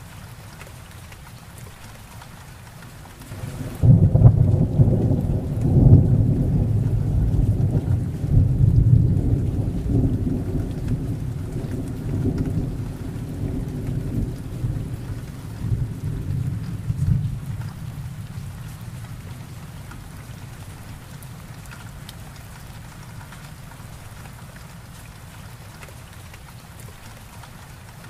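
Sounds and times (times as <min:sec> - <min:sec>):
heavy rain: 0:00.0 - 0:28.0
thunder rumbling: 0:03.3 - 0:19.6.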